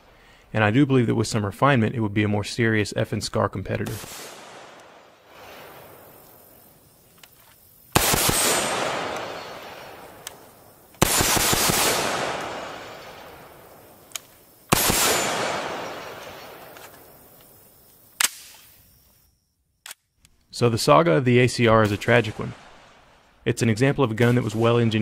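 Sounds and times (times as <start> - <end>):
rifle shots echoing: 3.9 - 6.3, 7.9 - 18.5, 21.7 - 23.4.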